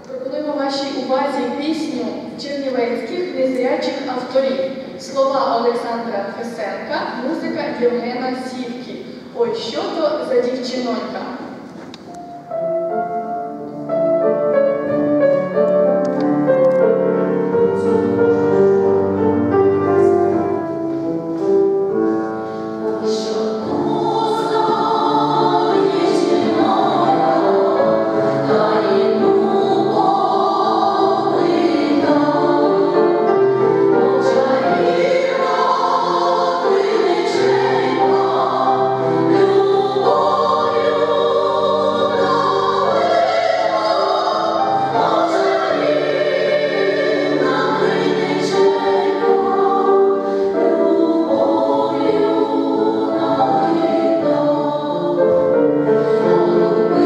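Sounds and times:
women's choir singing folk song: 0:22.6 - 0:57.0.

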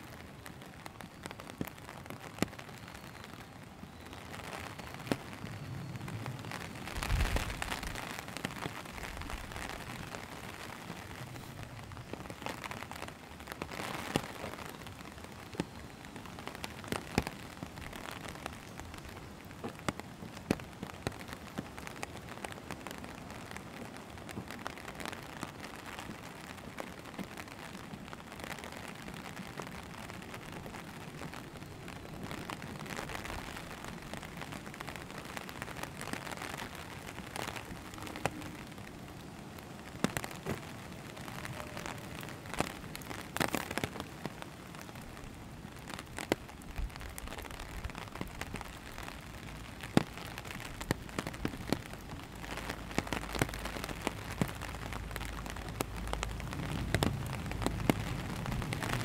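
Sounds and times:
rain hissing on wet road: 0:00.0 - 0:59.0
raindrops tapping close by: 0:00.0 - 0:59.0
car approaching rumble: 0:53.2 - 0:59.0.

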